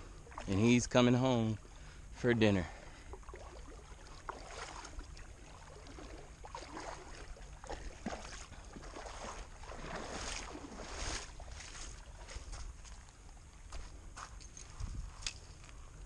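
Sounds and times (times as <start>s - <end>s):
legs sloshing through water: 0.0s - 0.8s, 2.7s - 13.7s
footsteps on gravel: 8.2s - 15.9s.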